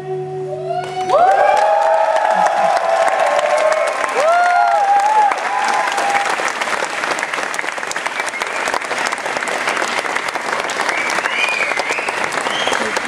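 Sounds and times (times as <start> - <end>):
whooping shouts: 0.6 - 6.4
audience clapping and cheering: 0.8 - 13.0.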